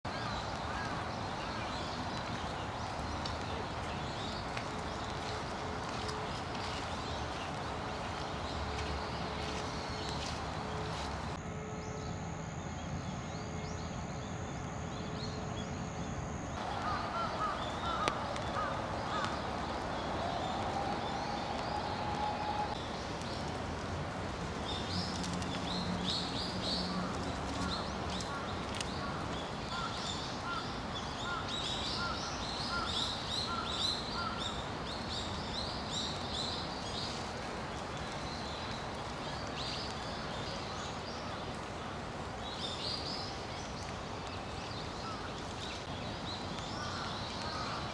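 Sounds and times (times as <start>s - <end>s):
small birds chirping: 0.1s - 11.4s, 16.6s - 23.6s.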